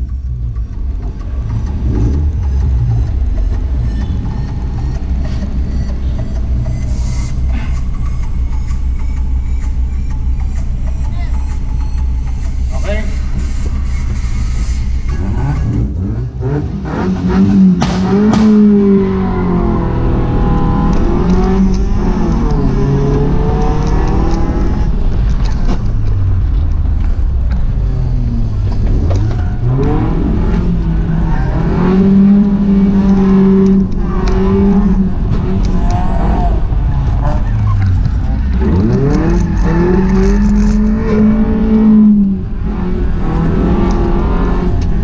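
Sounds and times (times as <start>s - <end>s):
car engine revving: 0.0s - 45.0s.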